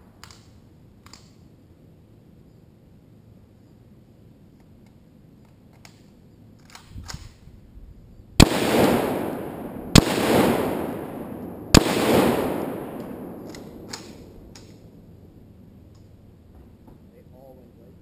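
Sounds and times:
rifle shots with rolling echo: 0:08.4 - 0:16.3.

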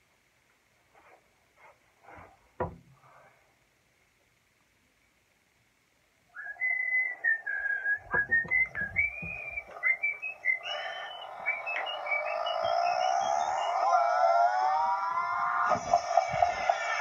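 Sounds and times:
thumps: 0:02.1 - 0:03.0, 0:08.0 - 0:10.3, 0:15.6 - 0:16.8
person whistling a tune: 0:06.4 - 0:12.6.

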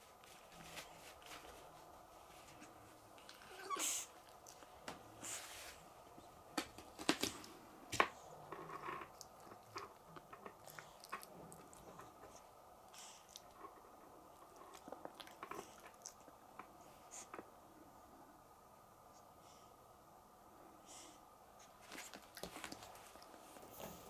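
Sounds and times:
puppy chewing and gnawing: 0:06.6 - 0:17.4, 0:21.8 - 0:24.0.

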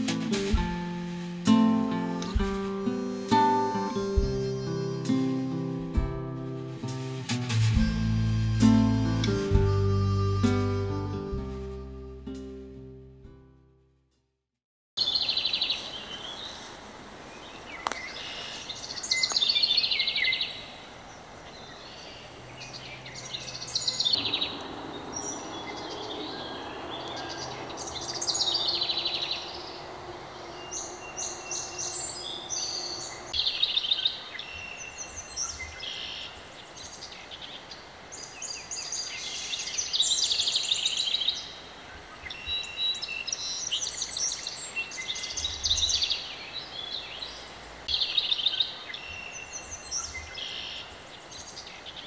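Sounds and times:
songbirds singing: 0:15.0 - 0:52.0
faint low drone: 0:22.7 - 0:33.4
bird trilling: 0:23.1 - 0:33.4.

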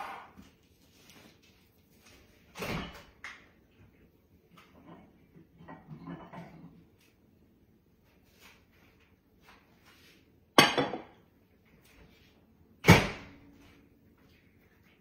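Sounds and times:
kitchen clicks and knocks: 0:10.6 - 0:11.2.

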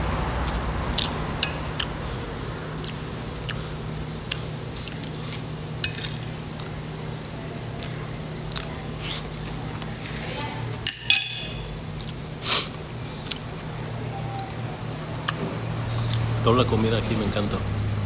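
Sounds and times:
steady low hum: 0:00.0 - 0:18.0
person chewing food: 0:00.4 - 0:02.1, 0:02.7 - 0:06.9, 0:07.7 - 0:10.1, 0:11.8 - 0:13.7, 0:15.2 - 0:16.3.

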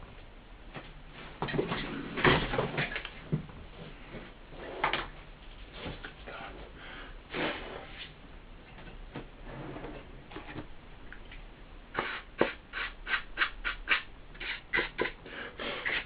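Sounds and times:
knocks and scrapes of handling: 0:00.8 - 0:08.2.

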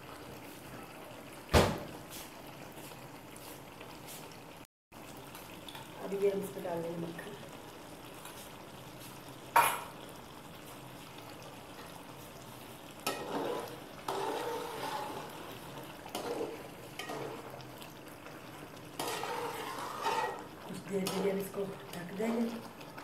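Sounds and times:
spoon stirring thick gravy: 0:13.0 - 0:17.6, 0:18.9 - 0:21.4.

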